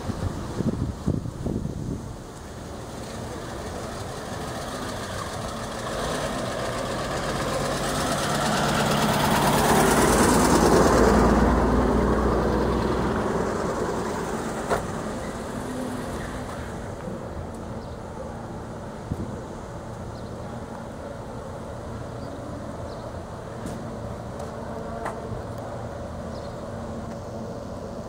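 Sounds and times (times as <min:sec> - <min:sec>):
car engine driving past: 0:03.0 - 0:17.3.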